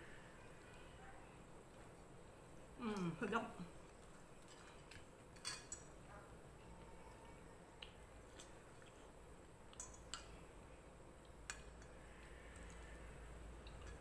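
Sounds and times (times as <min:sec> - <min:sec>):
cutlery clinking on ceramic plate: 0:04.5 - 0:05.9.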